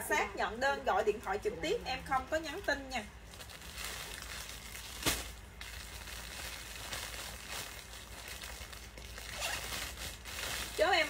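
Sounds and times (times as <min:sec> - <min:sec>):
fabric rustling: 0:03.3 - 0:11.0.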